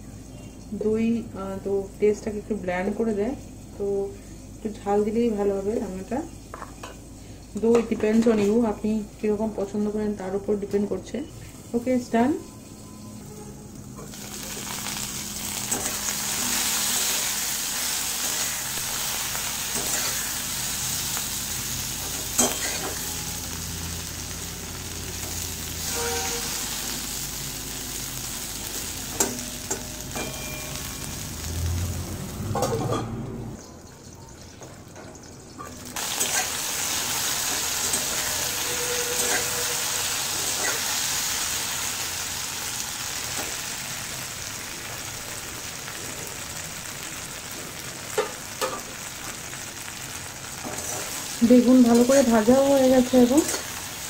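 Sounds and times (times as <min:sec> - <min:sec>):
eggplant sizzling in hot oil: 0:00.6 - 0:54.0
metal spatula scraping pan: 0:25.2 - 0:26.9, 0:37.4 - 0:41.2.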